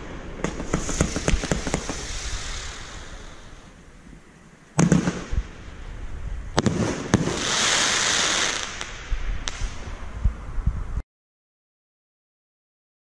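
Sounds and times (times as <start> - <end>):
firework crackle: 0.0 - 3.8, 4.7 - 5.9, 6.5 - 10.3
scattered firework pops: 0.4 - 2.1, 4.8 - 5.4.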